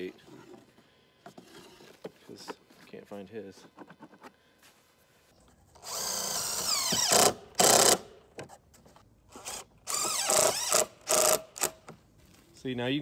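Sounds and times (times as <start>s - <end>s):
cordless drill driving screws: 5.8s - 8.1s, 9.3s - 11.9s.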